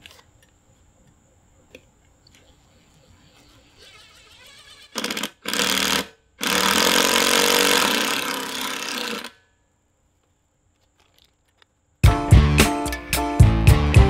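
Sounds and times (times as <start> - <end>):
impact driver hammering screws: 4.9 - 9.4.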